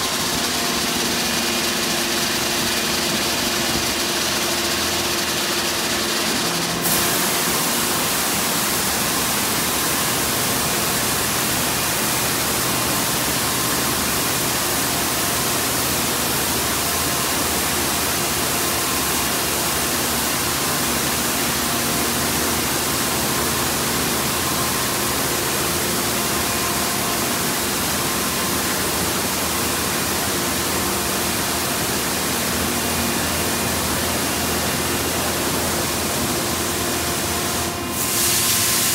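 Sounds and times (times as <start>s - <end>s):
car wash rushing noise: 0.0s - 38.9s.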